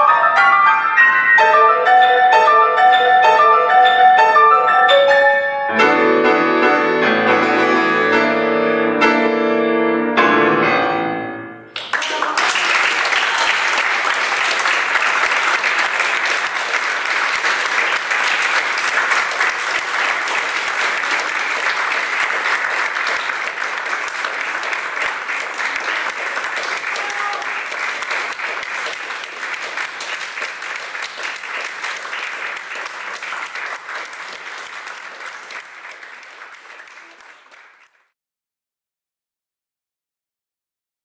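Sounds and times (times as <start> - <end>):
audience applauding: 11.7 - 38.2.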